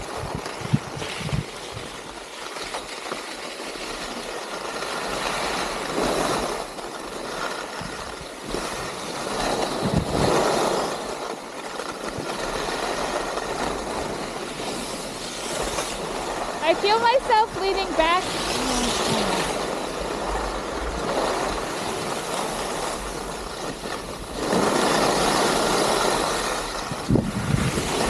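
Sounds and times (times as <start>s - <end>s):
skis scraping over snow: 0.0s - 28.0s
wind rushing: 26.9s - 28.0s.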